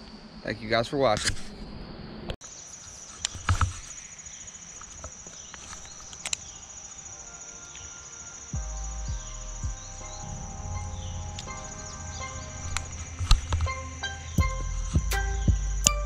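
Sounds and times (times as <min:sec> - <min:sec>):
insects trilling: 0:02.4 - 0:16.0
faint music: 0:05.8 - 0:16.0.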